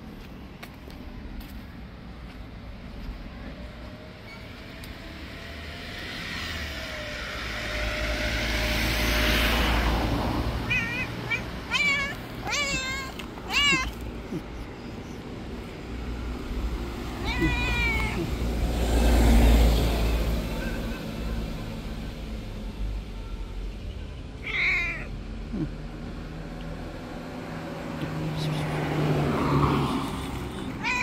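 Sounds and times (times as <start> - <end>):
vehicle passing: 1.1 - 23.2, 24.4 - 31.0
cat meowing: 10.6 - 14.7, 17.0 - 18.5, 24.4 - 25.1, 30.6 - 31.0.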